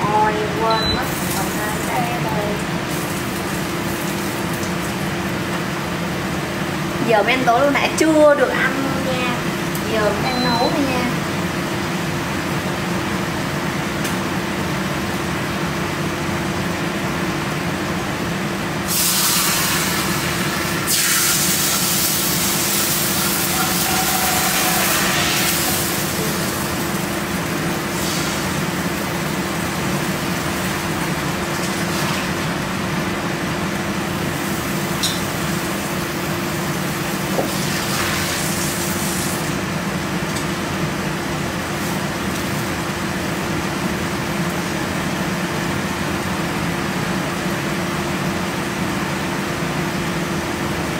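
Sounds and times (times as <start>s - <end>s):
range hood fan humming: 0.0s - 50.9s.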